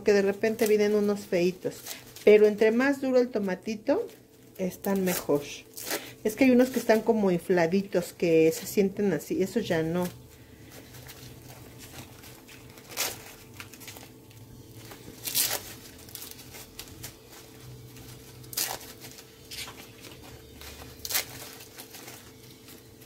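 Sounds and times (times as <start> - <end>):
low steady hum: 0.0 - 23.0
husks tearing and crackling: 10.0 - 23.0.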